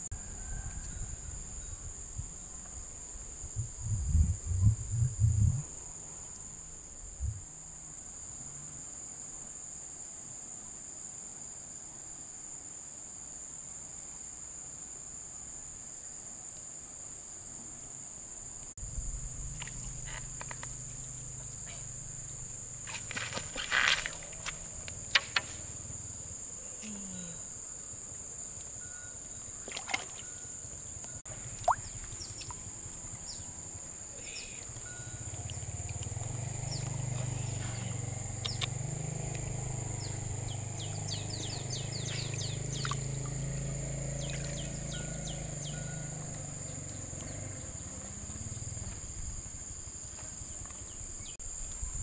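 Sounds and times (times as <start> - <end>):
high-pitched insect buzz: 18.7 - 51.8
low hum: 18.8 - 22.8.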